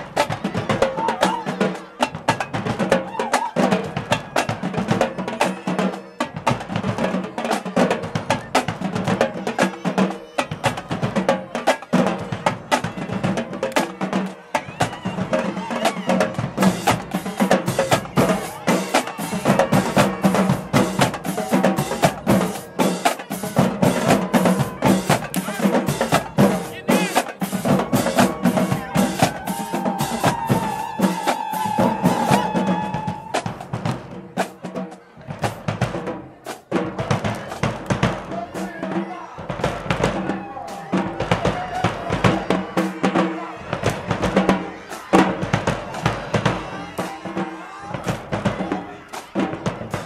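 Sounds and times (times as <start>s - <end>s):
snare and bass drums playing: 0.0s - 50.0s.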